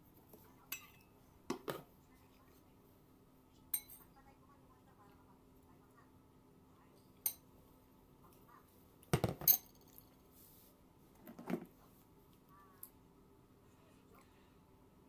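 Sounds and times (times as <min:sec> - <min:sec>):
fork clinking on bowl: 0:03.7 - 0:04.0.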